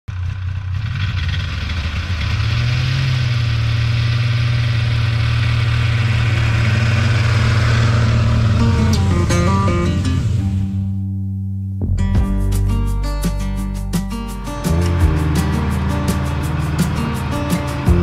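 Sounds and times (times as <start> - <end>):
snowmobile engine passing by: 0.2 - 10.7.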